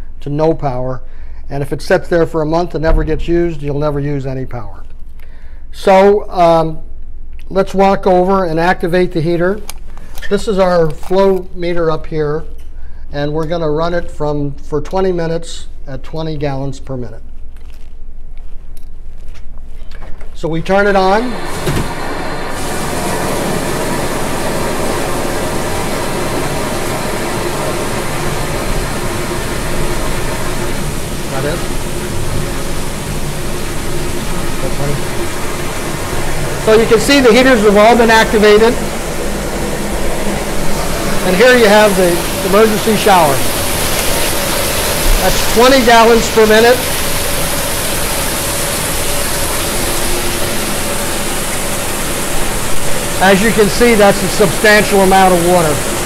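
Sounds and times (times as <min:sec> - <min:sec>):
shower water rushing: 0:20.5 - 0:56.0.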